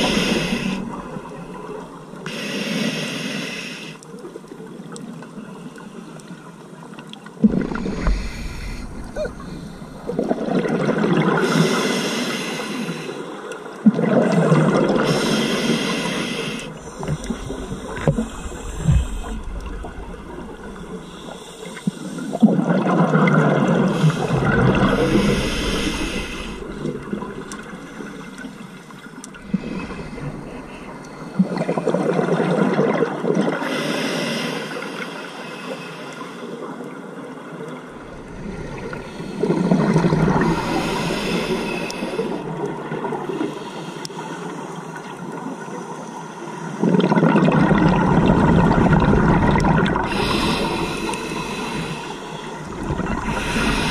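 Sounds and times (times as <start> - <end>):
underwater regulator breathing: 0.0 - 1.6, 7.4 - 10.4, 11.4 - 13.3, 14.8 - 22.6, 23.7 - 32.0, 38.1 - 42.7, 49.5 - 53.9
exhaled bubbles underwater: 7.3 - 11.9, 13.7 - 33.7, 37.9 - 43.6, 46.7 - 53.9.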